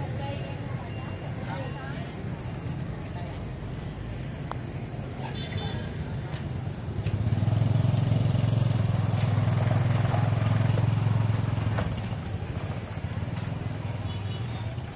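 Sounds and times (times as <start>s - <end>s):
motorbike engine passing: 6.0s - 14.0s.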